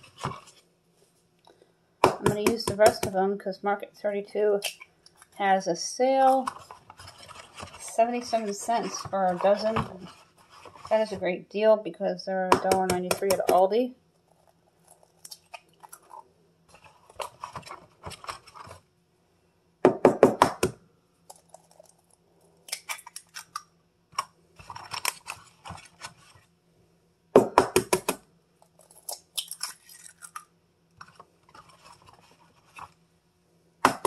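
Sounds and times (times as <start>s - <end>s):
eggshells crackling: 14.2s - 17.7s, 21.3s - 23.6s, 28.6s - 30.5s.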